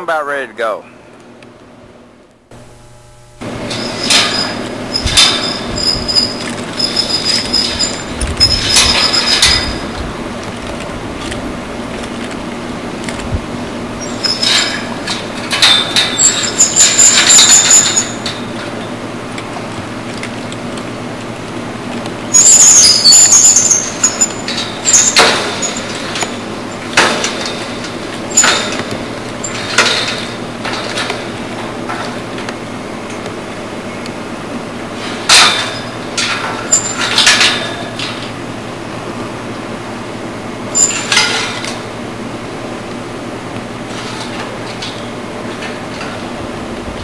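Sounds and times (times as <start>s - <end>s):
rope squealing through pulley: 3.7s - 10.0s, 14.0s - 15.0s, 15.6s - 18.4s, 22.3s - 26.8s, 40.8s - 41.1s.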